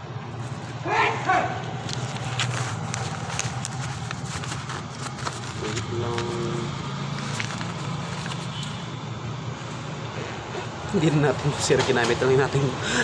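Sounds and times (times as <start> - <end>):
clicks and crackles near microphone: 1.6 - 8.8.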